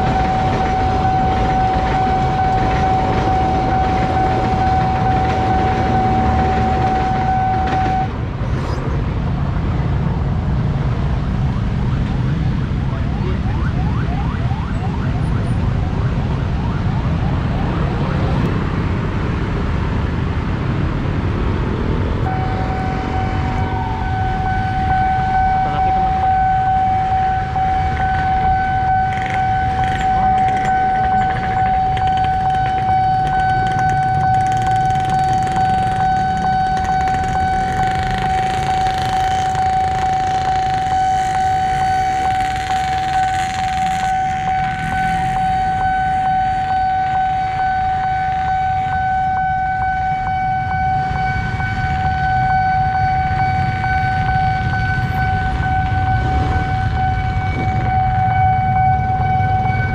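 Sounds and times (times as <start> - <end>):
level crossing alarm tone: 0.0 - 8.2, 22.3 - 59.9
road traffic rumble: 0.0 - 59.9
motorcycles: 53.2 - 59.9.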